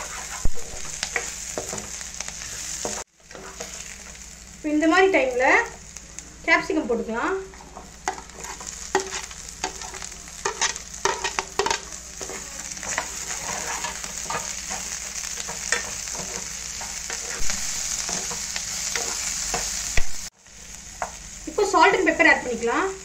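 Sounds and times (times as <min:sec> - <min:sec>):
vegetables sizzling in oil: 0:00.0 - 0:23.0.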